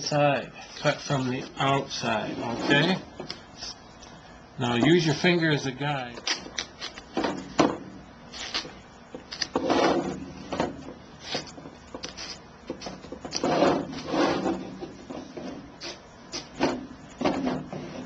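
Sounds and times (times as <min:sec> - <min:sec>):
skin rubbing against hoop: 0:11.2 - 0:16.7.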